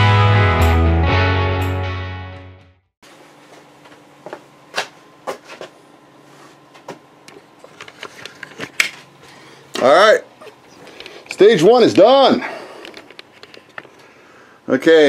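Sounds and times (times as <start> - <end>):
rock music with guitar: 0.0 - 2.7.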